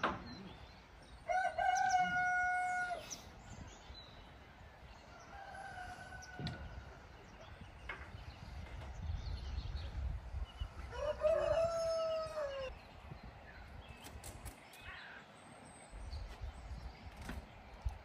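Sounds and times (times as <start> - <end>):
rooster crowing: 1.3 - 3.0, 5.2 - 6.6, 10.9 - 12.7.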